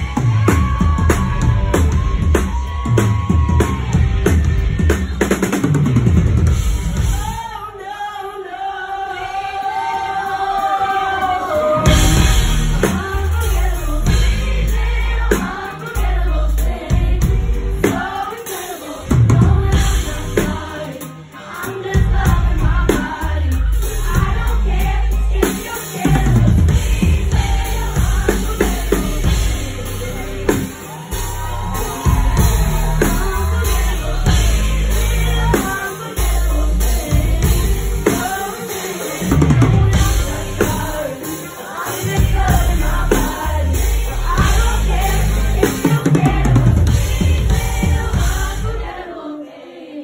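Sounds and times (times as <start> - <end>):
live pop band playing: 0.0 - 49.4
woman singing amplified: 7.0 - 50.0.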